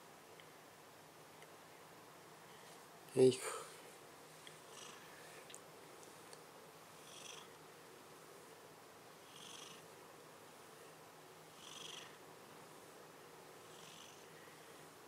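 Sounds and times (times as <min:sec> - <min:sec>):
cat purring: 0:04.6 - 0:05.1, 0:07.0 - 0:07.6, 0:09.2 - 0:09.9, 0:11.5 - 0:12.2, 0:13.6 - 0:14.3.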